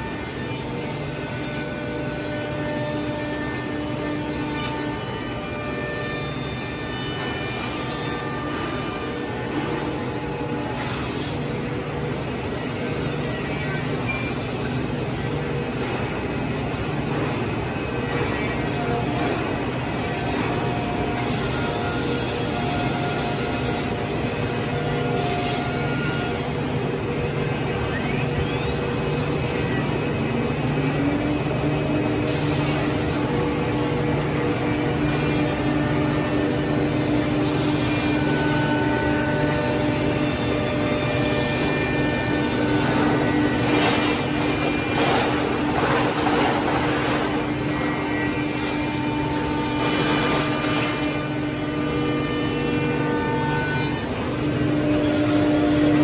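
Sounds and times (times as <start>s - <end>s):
dust extraction running: 25.9s - 53.0s.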